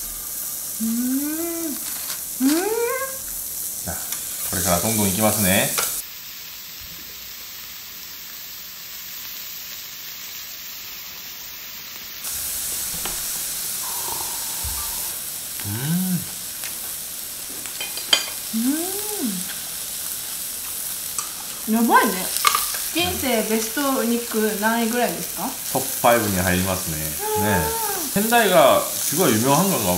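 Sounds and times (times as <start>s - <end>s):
beef sizzling on a grill plate: 0.0s - 29.9s
person humming while chewing: 0.8s - 3.1s, 13.8s - 16.4s, 18.5s - 19.6s, 27.2s - 28.2s.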